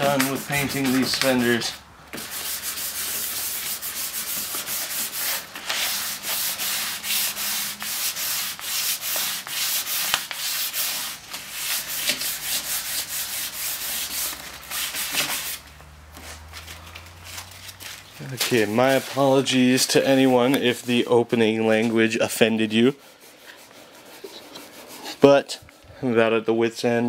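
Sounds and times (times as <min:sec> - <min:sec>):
hand sanding painted metal: 0:00.0 - 0:16.5, 0:17.2 - 0:25.3.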